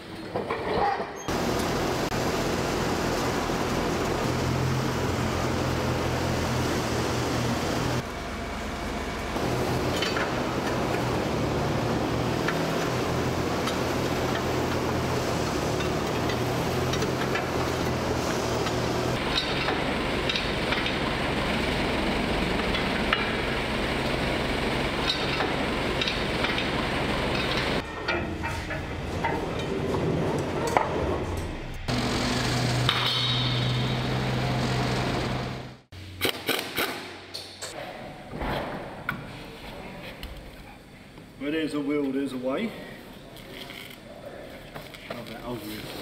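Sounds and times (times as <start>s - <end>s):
vehicle engine running: 1.3s - 27.8s, 29.2s - 36.0s.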